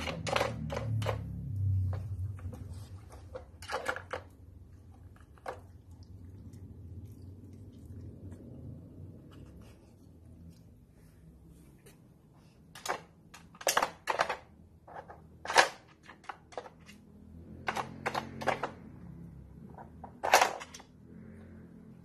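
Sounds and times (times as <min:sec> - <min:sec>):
plastic puzzle pieces clicking: 0:12.7 - 0:17.0, 0:17.6 - 0:18.9.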